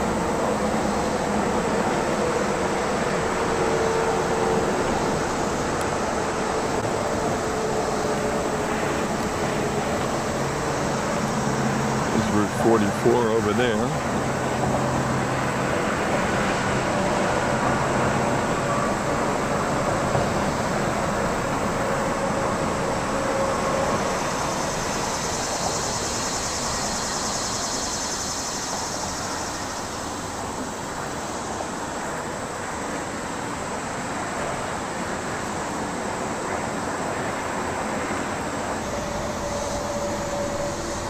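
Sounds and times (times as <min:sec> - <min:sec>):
faint steady tones: 0:00.0 - 0:16.2, 0:35.4 - 0:41.0
high hiss: 0:00.0 - 0:41.0
highway traffic noise: 0:00.0 - 0:41.0.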